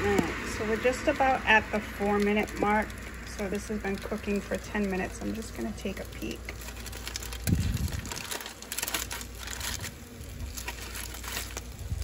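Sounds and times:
foil crinkling: 0:00.0 - 0:12.0.

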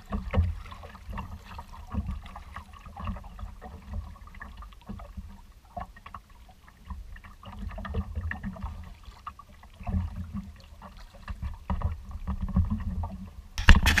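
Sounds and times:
water slapping kayak hull: 0:00.0 - 0:14.0
loud scrape: 0:13.6 - 0:14.0.

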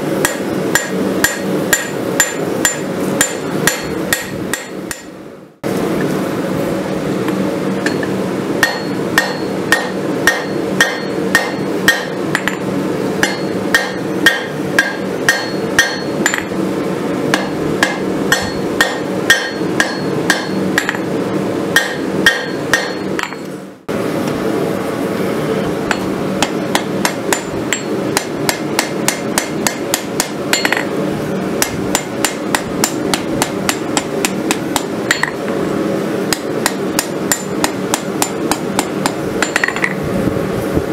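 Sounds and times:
steady hum: 0:00.0 - 0:40.9
hammer ringing on anvil: 0:00.2 - 0:05.2, 0:07.8 - 0:12.6, 0:13.2 - 0:16.5, 0:17.3 - 0:21.0, 0:21.8 - 0:23.4, 0:25.9 - 0:30.9, 0:31.6 - 0:35.4.

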